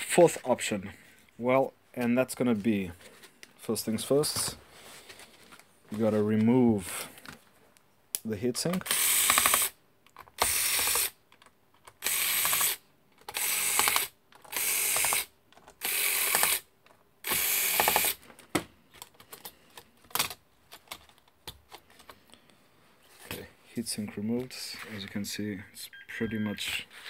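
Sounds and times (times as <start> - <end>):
electric screwdriver whirring: 8.8 - 9.8, 10.4 - 11.1, 12.0 - 16.6, 17.2 - 18.2.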